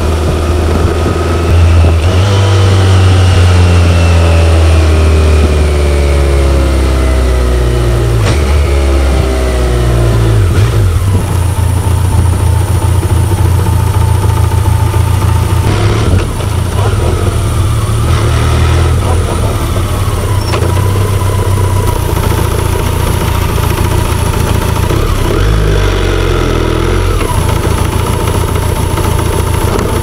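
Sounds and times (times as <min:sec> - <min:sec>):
motorcycle engine revving and idling: 0:00.0 - 0:30.0.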